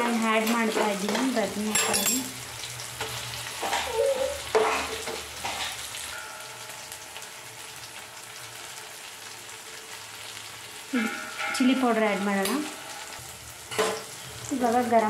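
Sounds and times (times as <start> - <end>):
food sizzling in oil: 0.0 - 15.0
metal spatula scraping a pan: 3.0 - 7.0, 10.9 - 14.5.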